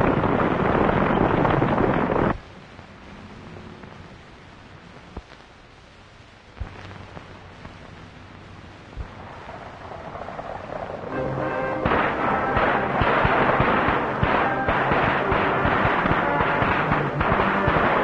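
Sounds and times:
film hiss: 0:00.0 - 0:18.0
sharp cracks: 0:08.9 - 0:18.0
dramatic music: 0:11.0 - 0:18.0.

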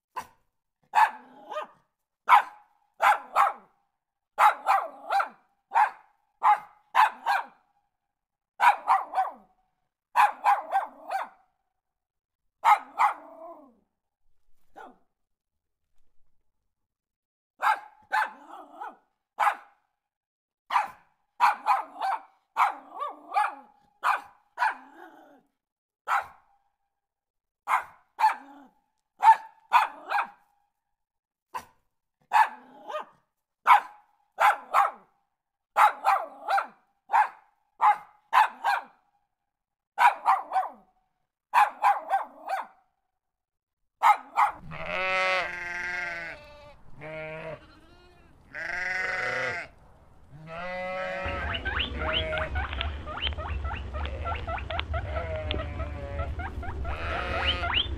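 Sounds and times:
small dog yapping: 0:01.0 - 0:03.6, 0:08.6 - 0:09.4, 0:10.2 - 0:11.3, 0:12.6 - 0:13.7, 0:14.7 - 0:15.0, 0:17.6 - 0:19.6, 0:20.7 - 0:25.4, 0:27.7 - 0:30.4, 0:32.3 - 0:33.1, 0:35.8 - 0:38.9, 0:40.0 - 0:40.8, 0:41.6 - 0:42.7, 0:44.0 - 0:49.7, 0:50.4 - 0:57.9
sheep bleating: 0:44.6 - 0:57.9.

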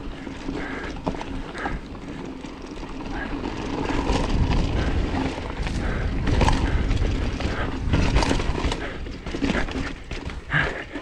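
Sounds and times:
bike clattering: 0:00.0 - 0:11.0
tyres crunching over rocks: 0:00.0 - 0:11.0
wind on microphone: 0:04.0 - 0:09.5.

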